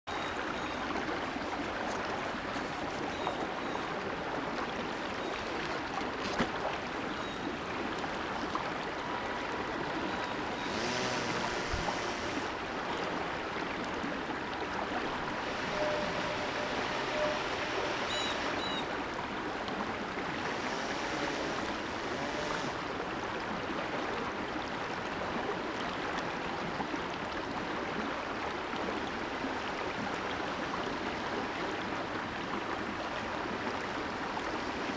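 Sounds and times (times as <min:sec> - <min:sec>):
creek water rushing over stones: 0:00.1 - 0:34.9
model airboat motor whine: 0:07.2 - 0:13.5, 0:14.8 - 0:19.3, 0:20.1 - 0:23.3.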